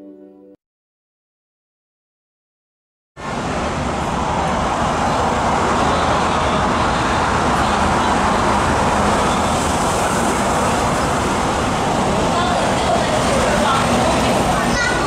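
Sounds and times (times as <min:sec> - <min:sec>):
city traffic: 0:03.2 - 0:15.0
electric train rumbling past: 0:03.2 - 0:15.0.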